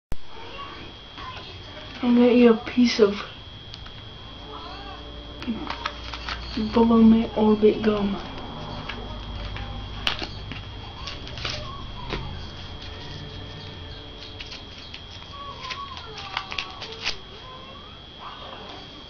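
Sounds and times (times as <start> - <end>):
faint wavering whine: 0.2 - 19.0
gum pack crinkling and clicking: 14.4 - 17.2.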